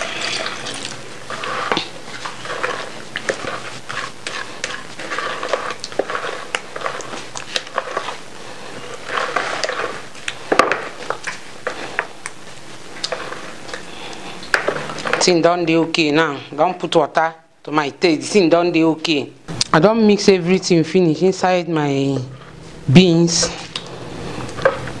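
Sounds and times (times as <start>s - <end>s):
wet squelching of batter: 0.0s - 15.3s.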